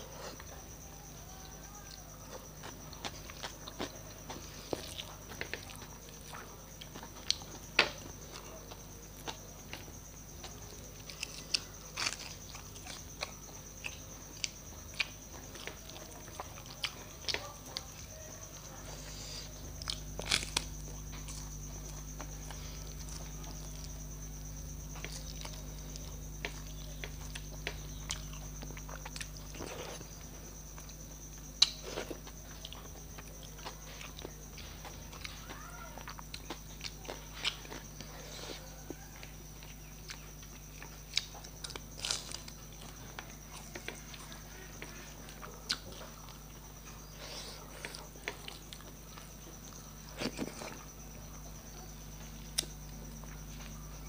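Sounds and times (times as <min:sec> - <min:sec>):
low steady hum: 0:00.0 - 0:54.0
chewing and mouth smacks: 0:24.9 - 0:30.0, 0:39.6 - 0:44.2, 0:45.3 - 0:46.5.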